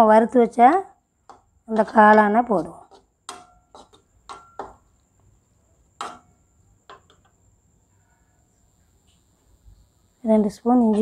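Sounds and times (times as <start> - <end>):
spoon knocking on frying pan: 1.2 - 5.1, 6.0 - 7.3.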